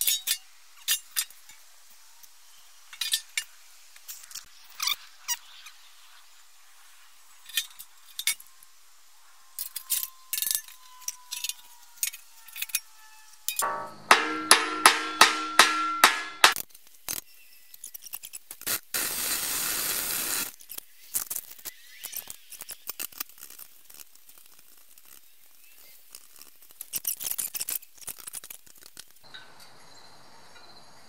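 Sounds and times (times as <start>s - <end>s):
metal strikes on steel beam: 13.6s - 16.6s
tools and steel knocking: 13.6s - 16.6s.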